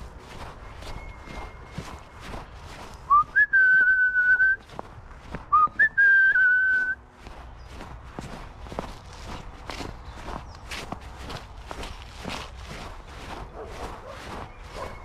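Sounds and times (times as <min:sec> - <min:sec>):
footsteps on frosty grass: 0:00.0 - 0:15.0
person whistling: 0:03.1 - 0:04.7, 0:05.5 - 0:07.0.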